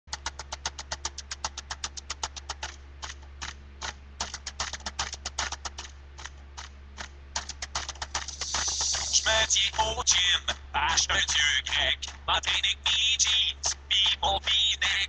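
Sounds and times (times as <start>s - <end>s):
keyboard keys clicking: 0.1s - 5.9s
steady low hum: 0.1s - 15.0s.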